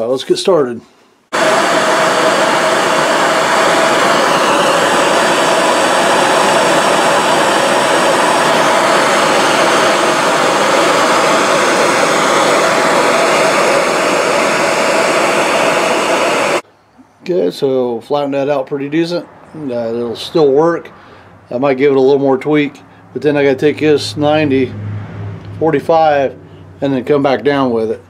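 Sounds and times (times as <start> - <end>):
gas torch hissing: 1.3 - 16.6.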